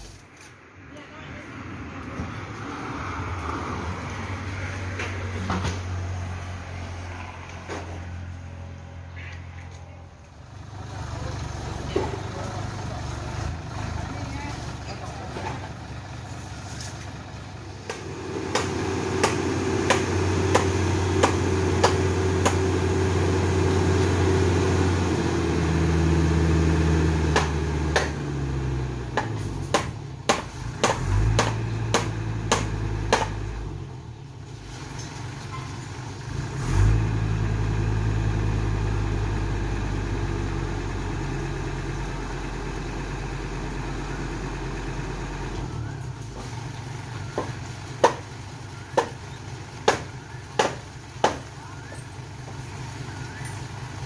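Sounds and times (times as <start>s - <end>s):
diesel truck engine running: 1.1s - 54.0s.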